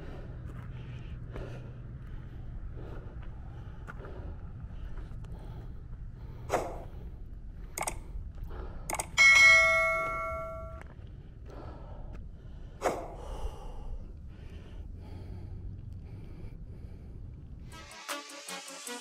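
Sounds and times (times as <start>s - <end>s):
low steady rumble: 0.0s - 17.7s
bright bell ding: 9.2s - 10.8s.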